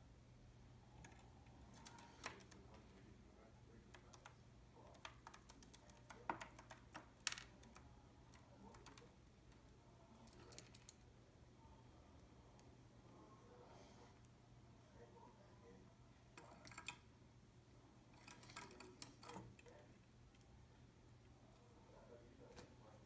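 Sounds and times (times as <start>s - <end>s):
birds pecking clicks and taps: 3.9s - 9.1s.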